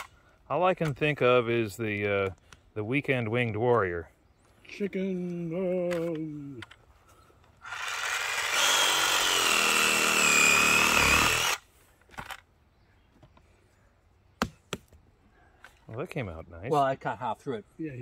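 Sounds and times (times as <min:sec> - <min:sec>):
reciprocating saw cutting root: 0:07.6 - 0:11.6.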